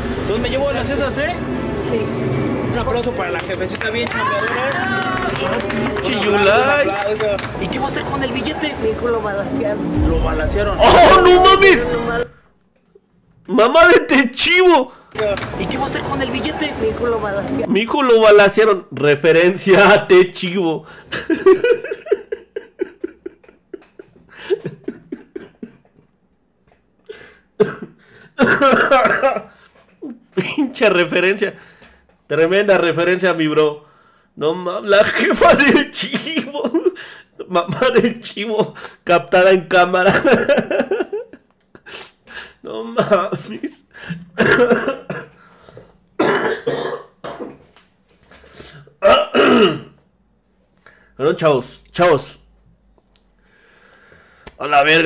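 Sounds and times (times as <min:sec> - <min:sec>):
woman coughing: 0:27.6 - 0:29.3, 0:44.4 - 0:45.3, 0:46.2 - 0:47.6, 0:49.0 - 0:49.9
man clearing throat: 0:27.6 - 0:29.4, 0:44.1 - 0:45.4, 0:46.2 - 0:47.7, 0:49.0 - 0:50.0.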